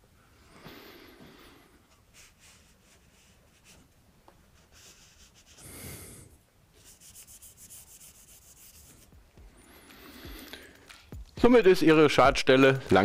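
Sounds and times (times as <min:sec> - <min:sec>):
cloth rubbing on floor plank: 0:02.1 - 0:05.7, 0:06.8 - 0:09.6.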